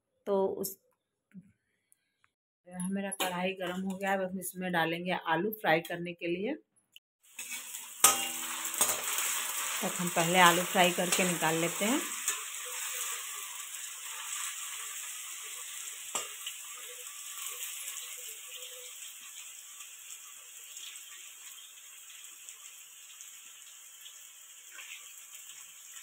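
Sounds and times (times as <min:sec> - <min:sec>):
potatoes sizzling in hot oil: 0:07.2 - 0:26.0.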